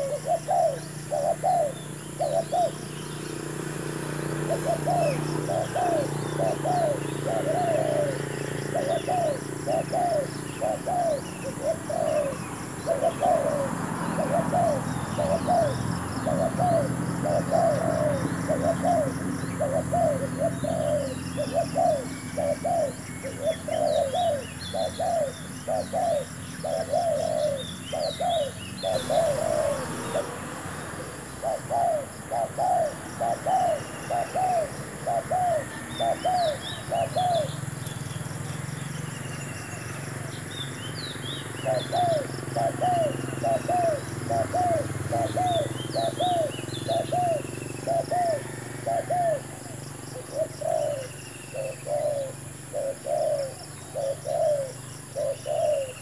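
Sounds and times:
dove cooing: 0.0 - 38.5, 39.2 - 56.0
small birds chirping: 0.0 - 56.0.

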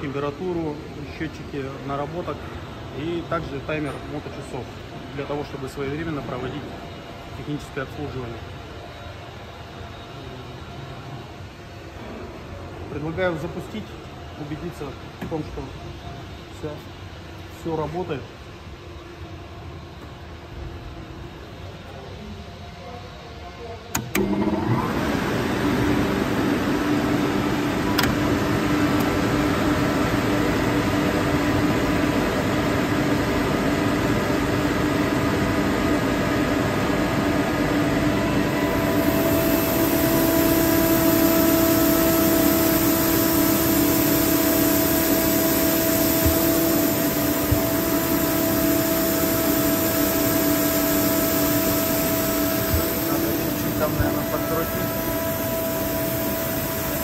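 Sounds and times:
air compressor running: 23.9 - 57.0
click: 27.9 - 28.2
higher tone: 38.1 - 57.0.

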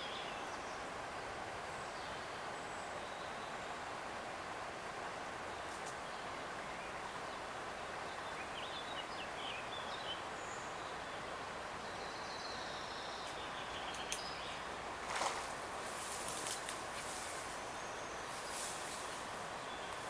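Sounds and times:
river flowing over riffles: 0.0 - 20.0
bird chirps: 11.8 - 15.3
faint clicks: 13.2 - 14.3.

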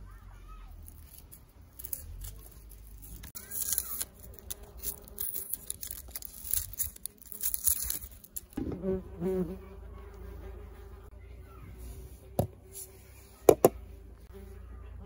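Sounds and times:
knife scraping onion skin: 0.8 - 8.6.

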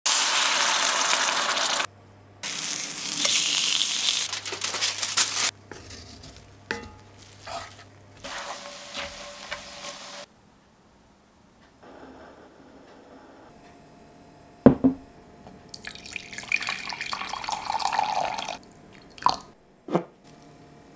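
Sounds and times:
rice sizzling in skillet: 0.1 - 10.3
wooden spoon scraping pan: 5.7 - 10.3.

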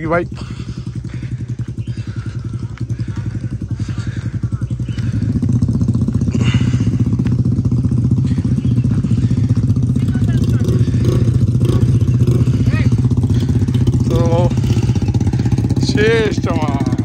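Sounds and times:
motorcycle engines idling: 0.0 - 17.0.

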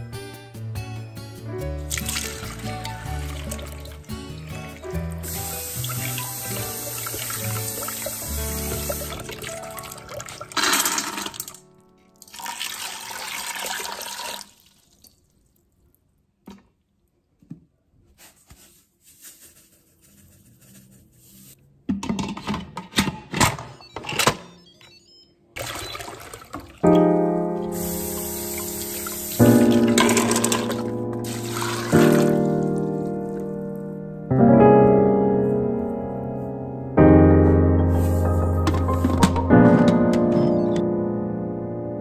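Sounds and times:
background music: 0.0 - 12.4, 26.8 - 42.0.

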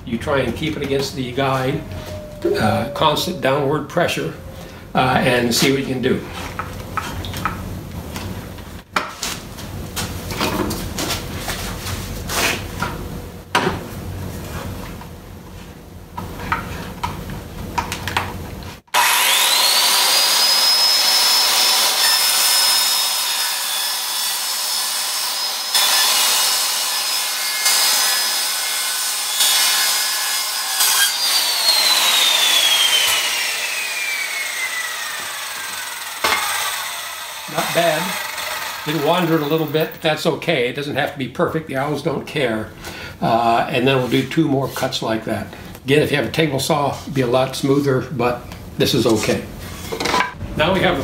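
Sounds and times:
circular saw whining: 0.5 - 6.2, 18.9 - 40.0.

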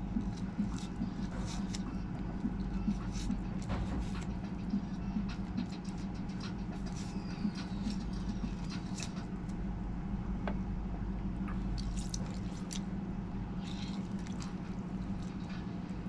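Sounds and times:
steady low hum: 0.0 - 16.0
juice dripping: 11.4 - 16.0.

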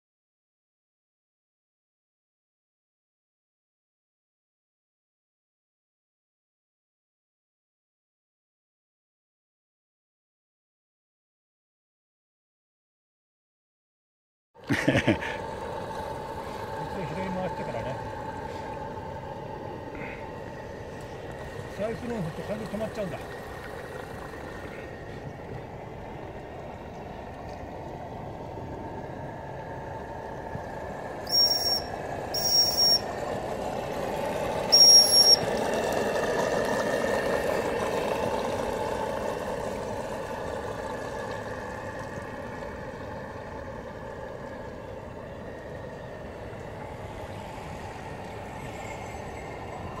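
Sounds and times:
model steam engine running: 14.8 - 26.8, 29.8 - 50.0
shrill steam whistle blasts: 31.3 - 33.1, 34.7 - 35.5.

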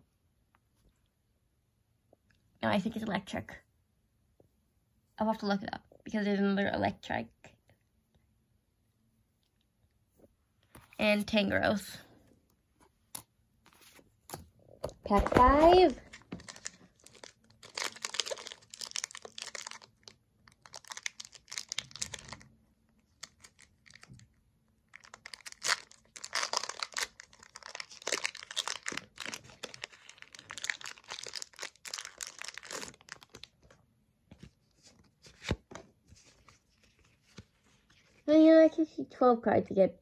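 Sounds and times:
foil wrapper tearing and crinkling: 15.8 - 22.4, 24.9 - 33.6.

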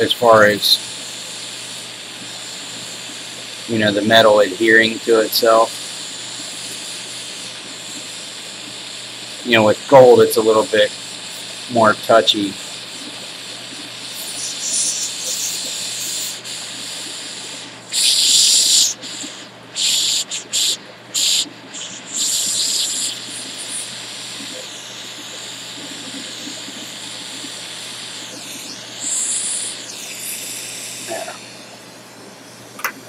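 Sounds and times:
gas torch hissing: 0.0 - 33.0.

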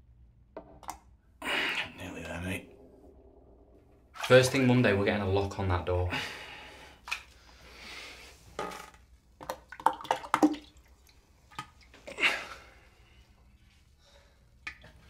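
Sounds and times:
bathwater sloshing and dripping: 3.7 - 5.8, 6.4 - 15.0
small water splashes: 9.4 - 12.0.

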